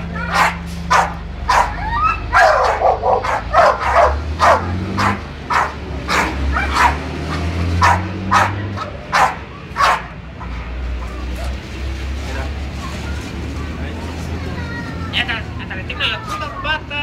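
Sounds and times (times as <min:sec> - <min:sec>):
dogs barking: 0:00.0 - 0:11.6.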